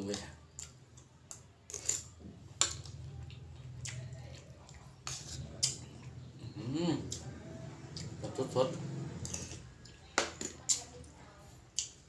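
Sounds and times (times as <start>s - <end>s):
spoon scraping ceramic bowl: 1.7s - 2.2s, 5.0s - 5.8s, 9.2s - 9.8s.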